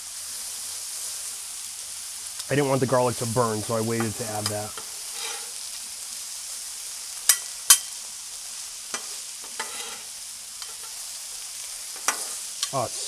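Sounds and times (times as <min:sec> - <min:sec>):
food sizzling on griddle: 0:00.0 - 0:13.0
metal spatulas clacking and scraping: 0:09.0 - 0:11.0, 0:12.0 - 0:12.8.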